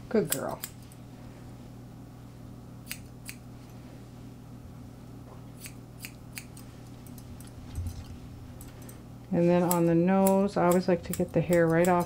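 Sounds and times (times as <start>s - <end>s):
steady low hum: 0.0s - 12.0s
scissors snipping hair: 0.2s - 1.0s, 2.8s - 3.4s, 5.6s - 8.0s, 9.5s - 12.0s.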